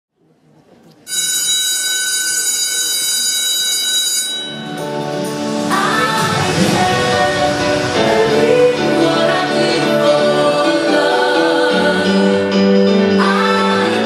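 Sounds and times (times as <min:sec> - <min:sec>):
electronic dance music: 0:04.6 - 0:14.0.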